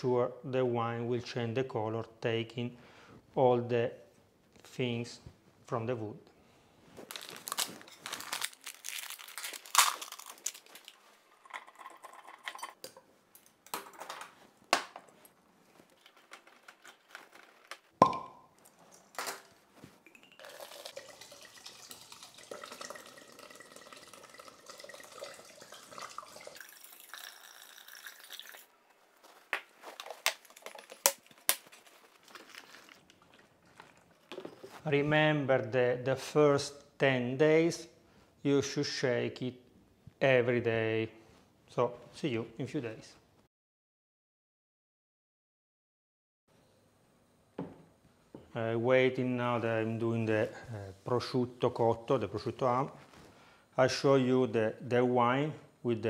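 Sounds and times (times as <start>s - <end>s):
plastic bag crinkling: 7.0s - 12.1s, 15.7s - 18.0s, 29.2s - 34.9s
wine pouring and gurgling: 11.3s - 12.8s, 20.1s - 28.7s.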